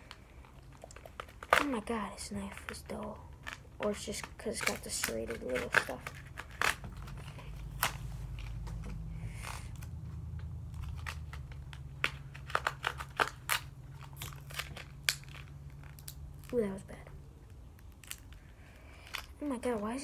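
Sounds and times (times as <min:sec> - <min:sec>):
knife cutting packaging: 0:03.4 - 0:08.6, 0:10.7 - 0:16.8
low hum: 0:05.3 - 0:19.4
packaging snapping: 0:10.7 - 0:16.7.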